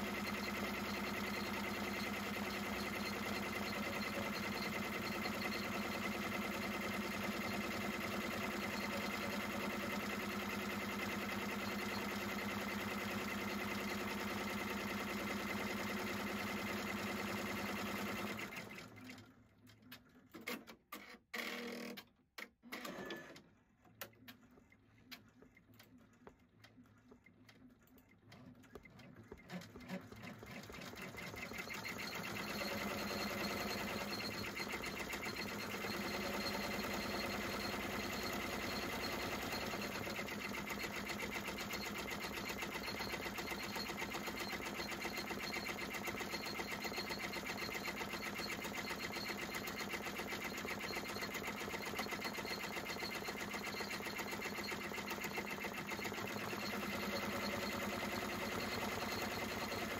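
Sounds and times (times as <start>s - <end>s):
embroidery machine stitching: 0.0s - 19.3s, 19.9s - 23.4s, 28.3s - 59.9s.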